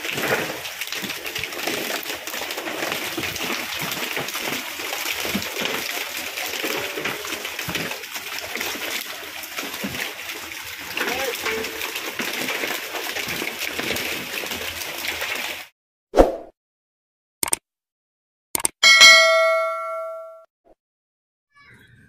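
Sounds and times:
running water hiss: 0.0s - 12.2s
fish flapping and splashing: 0.0s - 15.7s.

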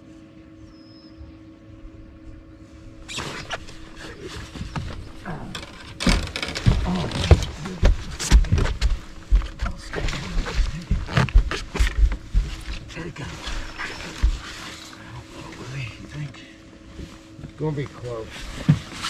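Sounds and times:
fish thumping against boat: 3.5s - 12.9s.

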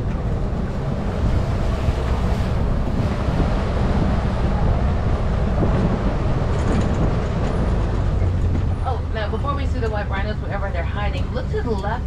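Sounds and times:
wind on microphone: 0.0s - 8.8s
low truck engine: 0.0s - 12.0s
road rumble: 0.0s - 12.0s.

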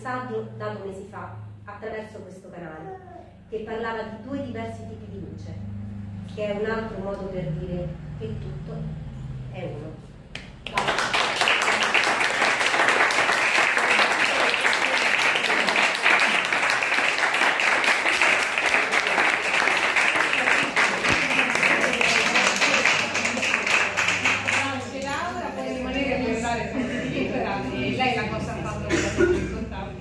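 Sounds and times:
small audience applauding: 10.4s - 25.3s.

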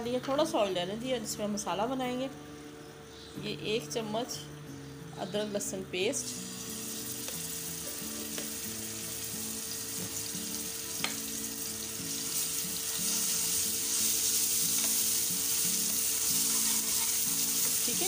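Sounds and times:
paste sizzling in hot oil: 6.3s - 18.0s.

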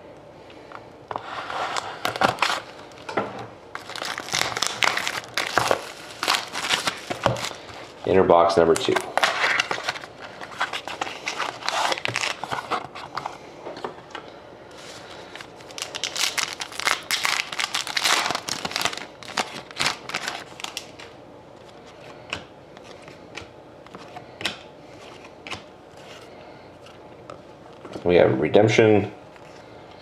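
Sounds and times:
card pack wrapper crinkling and tearing: 1.8s - 3.1s, 3.7s - 13.3s, 14.8s - 22.1s.

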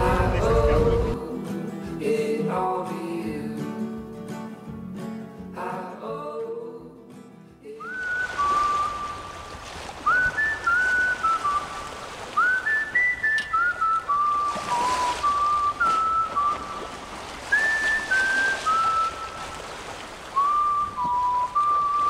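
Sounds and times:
person whistling a slow tune: 7.8s - 9.4s, 10.1s - 16.9s, 17.5s - 19.5s, 20.4s - 22.0s.

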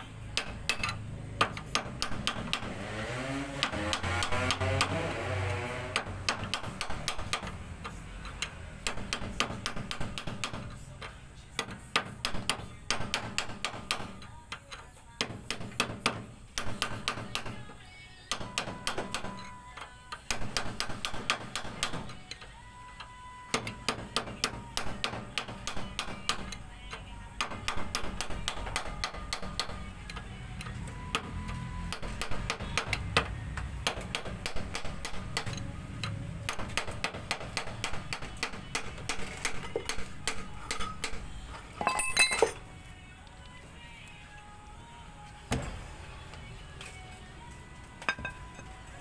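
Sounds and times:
background music: 0.0s - 49.0s
metallic clatter: 41.8s - 42.6s.

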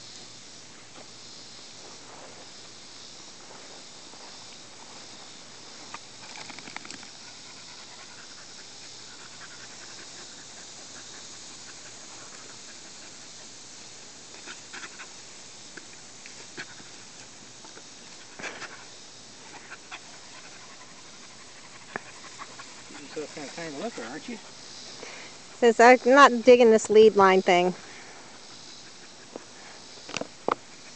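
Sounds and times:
steady hiss: 0.0s - 30.9s
small dog panting: 6.2s - 13.6s, 14.3s - 15.2s, 18.1s - 24.6s, 28.2s - 29.9s.

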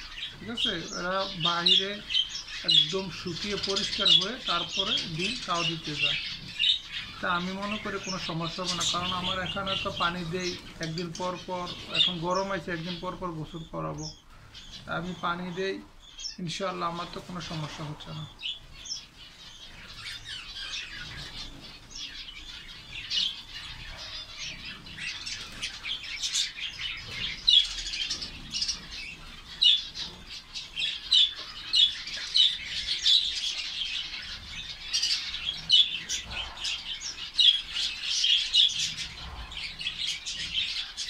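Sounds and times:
finches chirping: 0.0s - 41.0s.

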